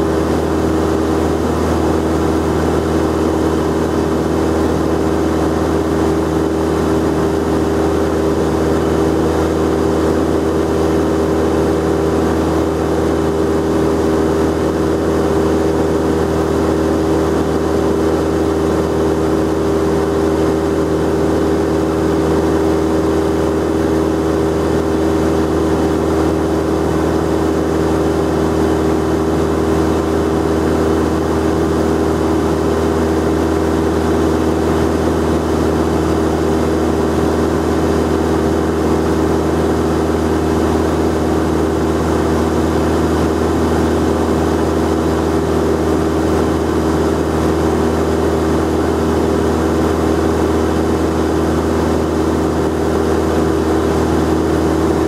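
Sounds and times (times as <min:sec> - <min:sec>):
propeller plane engine droning: 0:00.0 - 0:55.0.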